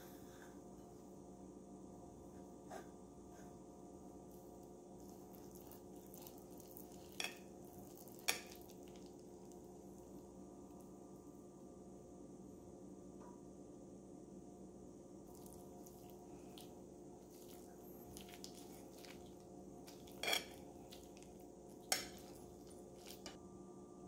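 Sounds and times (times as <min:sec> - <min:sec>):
faint steady hum: 0:00.0 - 0:24.0
cutlery clinking on a plate: 0:19.9 - 0:21.1, 0:21.9 - 0:22.4.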